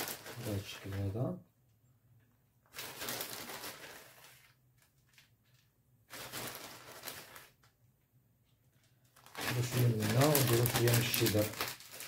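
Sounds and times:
plastic bag rustling: 0.0 - 1.2, 2.7 - 7.7, 8.7 - 12.0.

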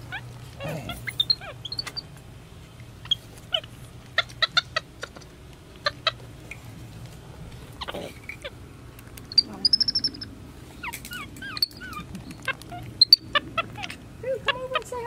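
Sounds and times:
monkeys squeaky chirps: 0.0 - 2.2, 3.0 - 6.3, 9.2 - 15.0.

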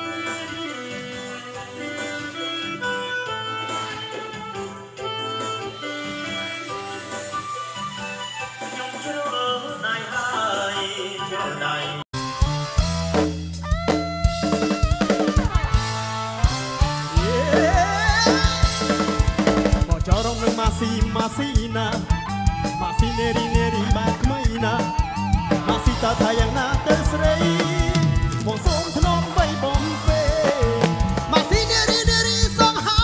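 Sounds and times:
bass line: 12.2 - 33.0
drum kit beat: 12.2 - 33.0.

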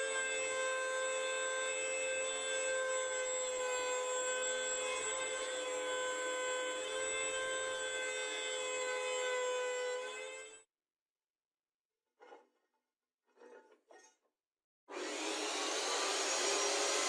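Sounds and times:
electric planer whining: 0.0 - 10.0, 14.9 - 17.0
planer shaving wooden board: 14.9 - 17.0.

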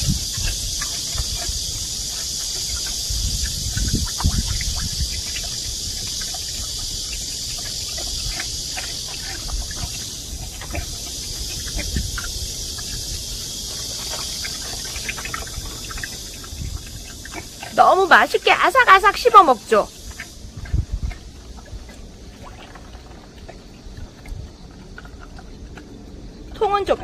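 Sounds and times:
pig slurping water: 0.0 - 27.0.

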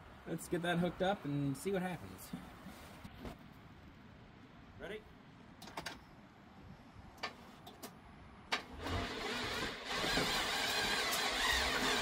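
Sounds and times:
starter motor whirring: 8.8 - 12.0.

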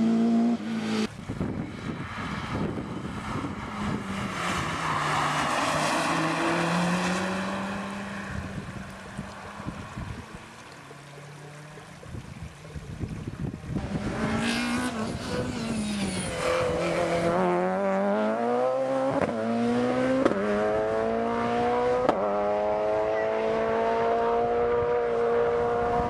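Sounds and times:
rally car engine revving: 2.4 - 8.6, 13.8 - 26.0.

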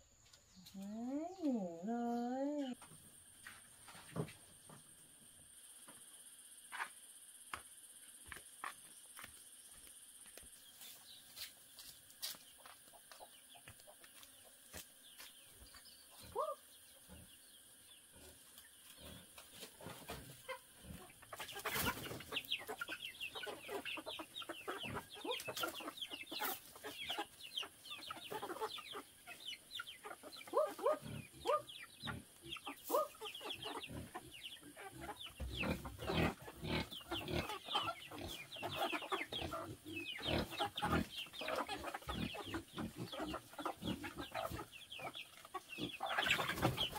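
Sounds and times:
chickens clucking: 0.2 - 6.1, 6.7 - 7.6, 10.8 - 46.9
pecking taps on grain: 11.4 - 15.8.

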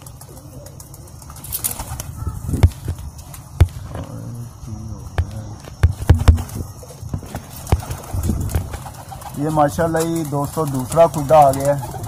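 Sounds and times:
wings flapping: 0.0 - 4.1, 5.8 - 12.0
pigeons cooing: 0.0 - 12.0.

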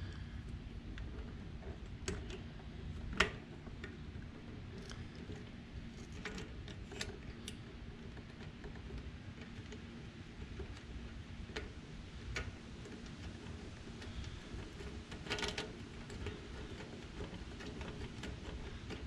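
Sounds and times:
small clicks of clamp: 3.1 - 4.0, 11.5 - 19.0.

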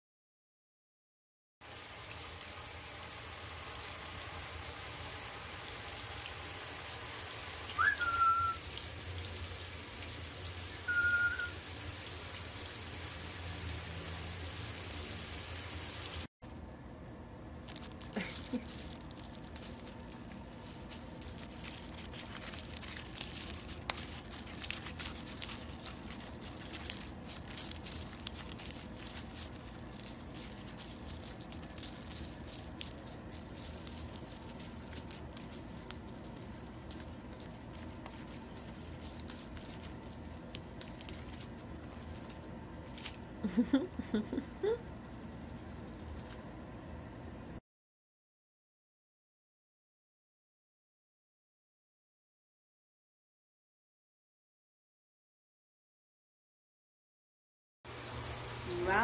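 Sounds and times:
water spraying from shower head: 1.7 - 16.3, 57.9 - 59.0
parrot whistles: 7.7 - 8.6, 10.8 - 11.6
paper tearing and rustling: 17.6 - 43.2.

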